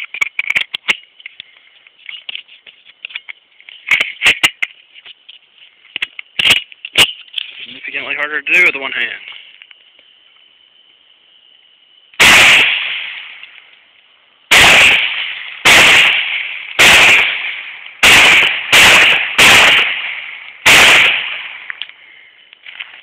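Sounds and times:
pistol shots: 12.2s - 13.4s, 14.5s - 21.7s.

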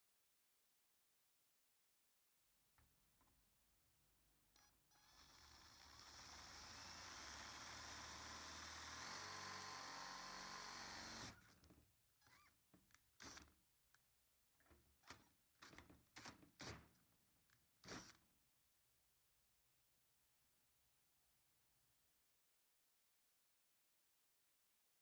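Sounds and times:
cordless drill boring metal: 4.6s - 11.5s.

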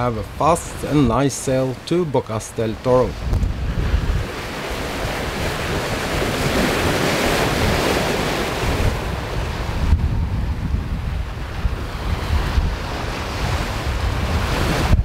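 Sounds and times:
water rushing along hull: 0.0s - 15.0s
wind buffeting microphone: 3.0s - 15.0s.

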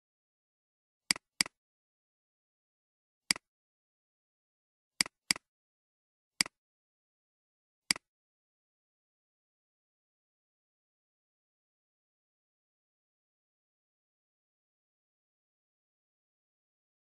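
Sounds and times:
computer mouse clicks: 1.1s - 1.6s, 5.0s - 5.5s.

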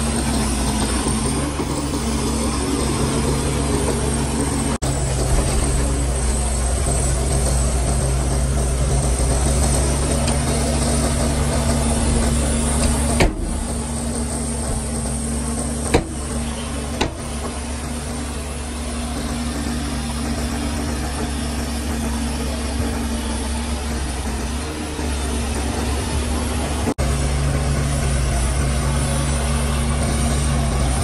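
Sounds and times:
heavy diesel engine running: 0.0s - 31.0s.

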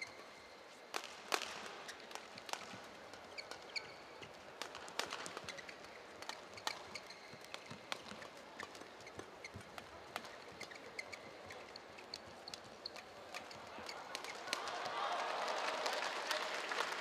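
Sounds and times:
shoes squeaking on court: 0.0s - 14.6s
racket hitting shuttlecock: 0.9s - 14.7s
arena crowd hum: 9.6s - 17.0s.

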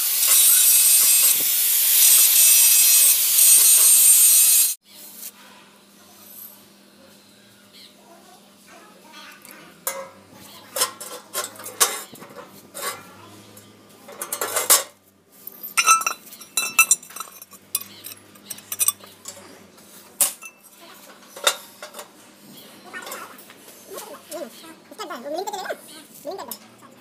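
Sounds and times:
steel parts clanking: 10.8s - 13.0s, 14.1s - 19.5s.

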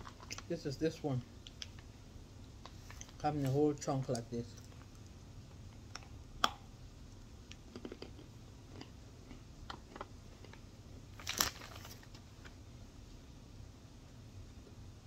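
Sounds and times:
chewing chalk crunches: 7.5s - 10.6s.

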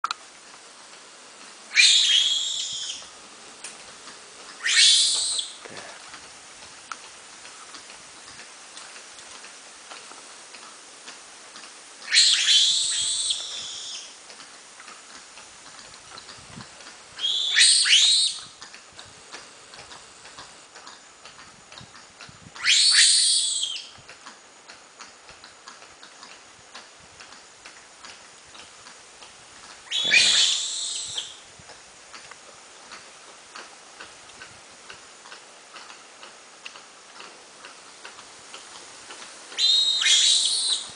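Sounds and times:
lemur shrill cries: 1.7s - 3.0s, 4.6s - 5.6s, 12.1s - 14.1s, 17.2s - 18.5s, 22.6s - 23.9s, 29.9s - 31.4s, 39.6s - 40.9s.

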